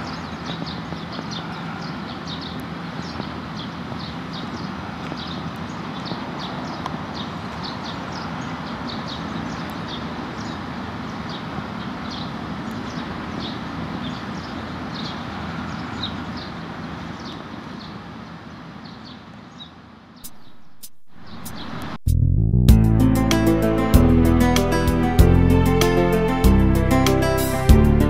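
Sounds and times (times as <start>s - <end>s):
birds chirping: 0.0s - 22.0s
steady low noise: 20.2s - 28.0s.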